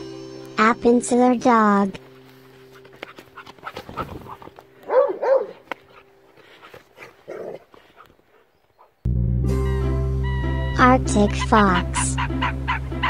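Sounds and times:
dog moving: 0:02.3 - 0:08.8
dog yelping: 0:02.8 - 0:09.0, 0:12.2 - 0:13.0.

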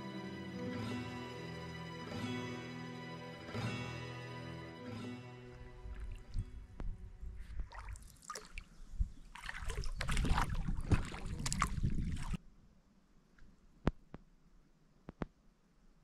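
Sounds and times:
water sloshing against hull: 0:07.4 - 0:12.4
paddle strokes splashing: 0:07.5 - 0:08.7, 0:09.3 - 0:12.4.

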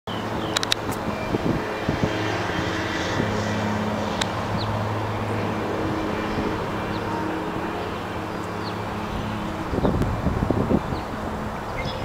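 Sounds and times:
distant locomotive engine drone: 0:00.1 - 0:12.0
sharp tick: 0:00.5 - 0:01.0.

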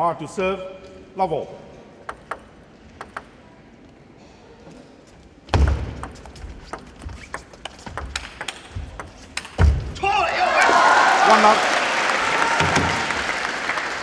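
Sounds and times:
ball clicking off bats and table: 0:02.0 - 0:03.4, 0:05.5 - 0:10.0
table tennis ball taps: 0:02.0 - 0:03.4, 0:05.6 - 0:09.8
heavy thump: 0:09.6 - 0:10.0.

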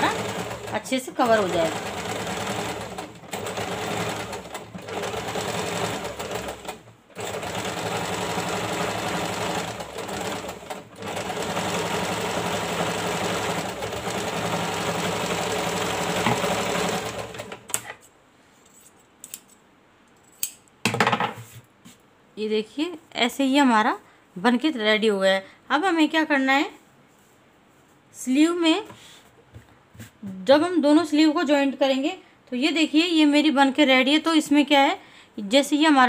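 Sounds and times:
sewing machine stitching: 0:00.0 - 0:18.0.

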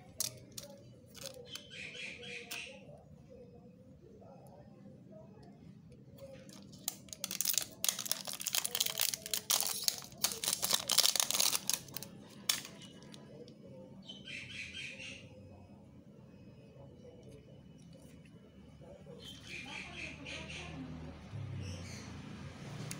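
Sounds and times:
plastic shrink-wrap crinkling: 0:00.0 - 0:01.5, 0:06.4 - 0:13.2.

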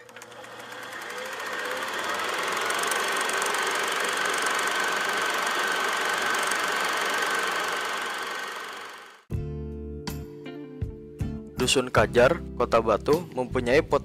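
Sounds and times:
mechanical whirr with rattle: 0:00.0 - 0:09.2.

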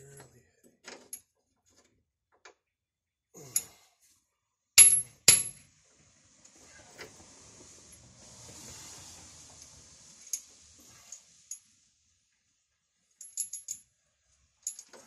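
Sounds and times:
hammer striking steel: 0:04.8 - 0:05.6.

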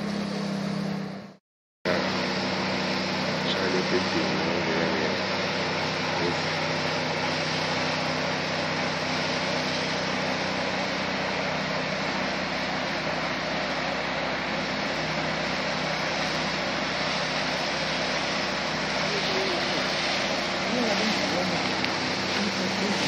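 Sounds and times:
power sprayer engine running: 0:00.0 - 0:23.0
spray hissing: 0:01.9 - 0:23.0.

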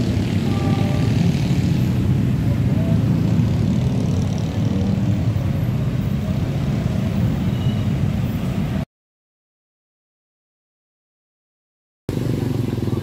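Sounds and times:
road traffic rumble: 0:00.0 - 0:08.9, 0:12.1 - 0:13.0.

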